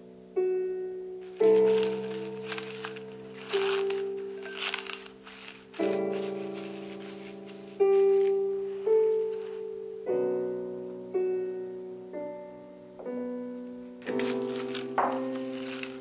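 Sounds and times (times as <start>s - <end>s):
gentle solo piano music: 0.0s - 16.0s
plastic cling wrap crinkling: 1.2s - 9.8s, 13.9s - 16.0s.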